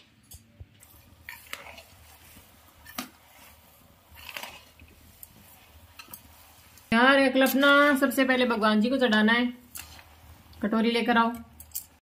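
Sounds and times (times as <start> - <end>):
metal spatula scraping a pan: 0.8 - 8.3, 9.7 - 10.6.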